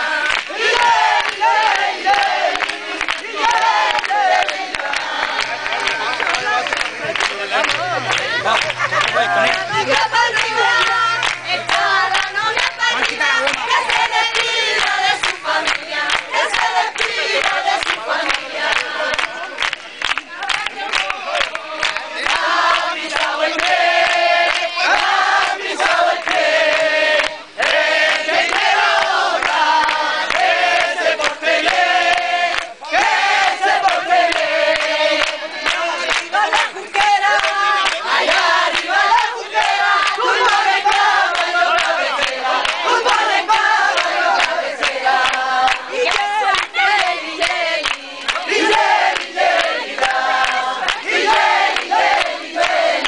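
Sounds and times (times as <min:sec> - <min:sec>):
crowd singing along: 0:00.0 - 0:53.0
rhythmic handclapping: 0:00.0 - 0:53.0.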